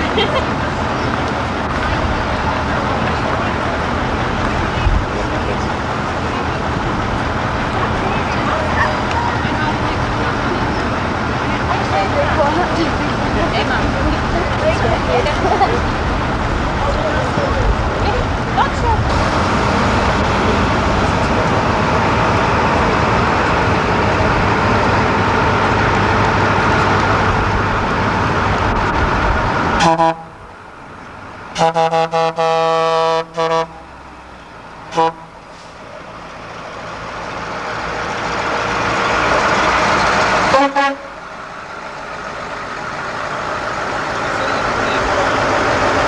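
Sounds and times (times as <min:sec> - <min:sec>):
diesel trucks driving past: 0:00.0 - 0:46.0
truck horns honking: 0:29.6 - 0:30.6, 0:31.5 - 0:35.8, 0:38.7 - 0:41.2.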